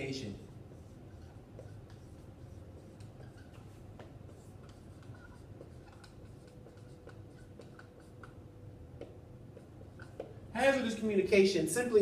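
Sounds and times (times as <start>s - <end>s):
pen scratching on paper: 0.4s - 8.4s.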